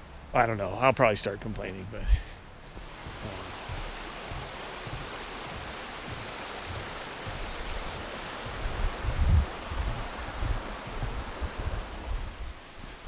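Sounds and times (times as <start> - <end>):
soft low thumps: 1.4 - 13.0
creek rushing over rocks: 2.6 - 13.0.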